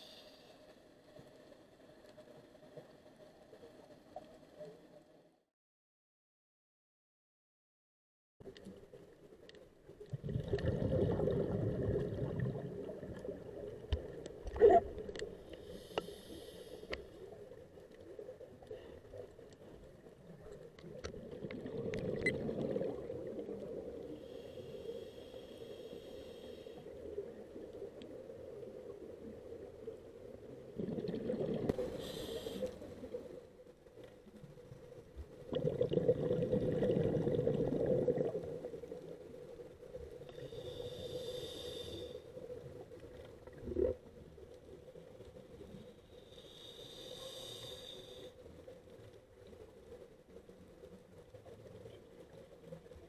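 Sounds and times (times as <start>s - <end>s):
faint clicks: 0.6s - 5.0s, 8.4s - 10.7s, 13.1s - 22.7s, 27.6s - 28.2s
exhaled bubbles rumbling: 10.0s - 15.2s, 20.2s - 24.2s, 28.4s - 32.1s, 34.4s - 40.3s, 42.6s - 44.4s
regulator hissing inhalations: 15.5s - 17.1s, 24.2s - 26.9s, 31.8s - 32.9s, 40.4s - 42.3s, 46.2s - 48.4s.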